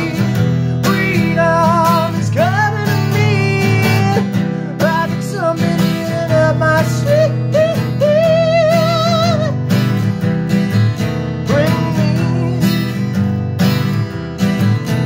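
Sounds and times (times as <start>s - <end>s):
man singing: 0.0s - 9.7s, 11.4s - 13.2s
acoustic guitar strumming: 0.0s - 15.0s.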